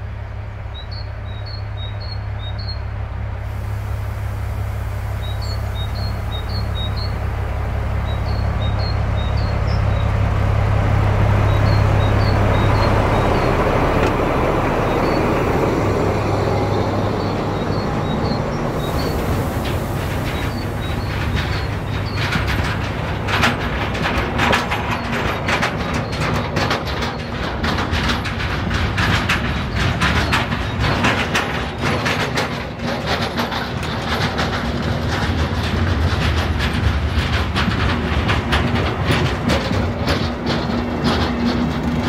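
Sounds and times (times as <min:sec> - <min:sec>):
steady low rumble: 0:00.0 - 0:42.0
train wheels clicking over rail joints: 0:03.6 - 0:42.0.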